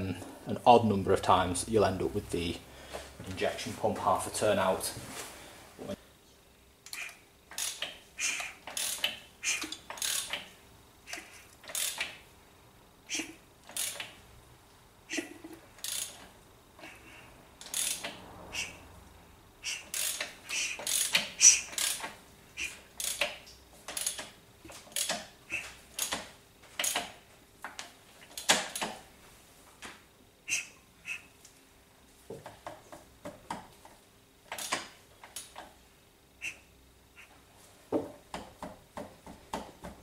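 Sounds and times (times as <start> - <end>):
hand ratchet clicking: 6.8 - 10.5, 11.1 - 12.2, 13.1 - 14.2, 15.1 - 18.8, 19.6 - 29.0, 34.5 - 35.7.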